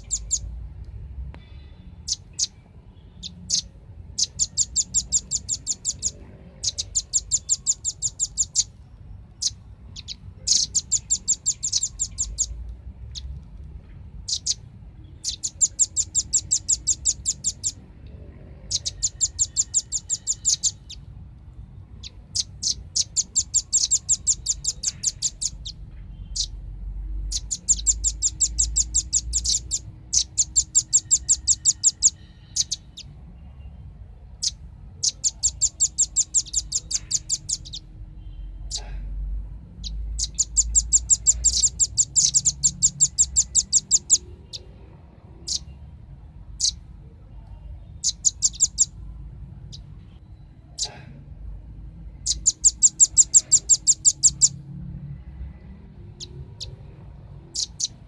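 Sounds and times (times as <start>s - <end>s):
bird calling in rapid trills: 0.0s - 0.5s, 3.2s - 8.8s, 9.4s - 12.6s, 14.2s - 17.8s, 18.6s - 21.0s, 22.0s - 26.6s, 27.3s - 33.1s, 34.4s - 37.9s, 39.8s - 44.7s, 45.4s - 45.7s, 48.0s - 49.0s, 52.2s - 54.6s, 57.5s - 58.0s.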